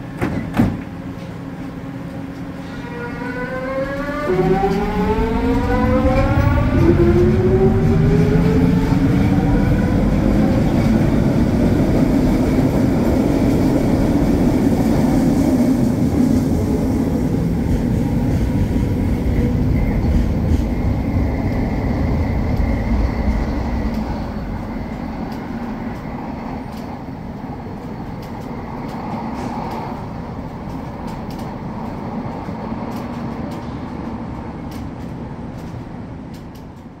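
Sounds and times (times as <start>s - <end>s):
train rumbling on guideway: 0.0s - 37.0s
train motor whine: 2.6s - 10.0s.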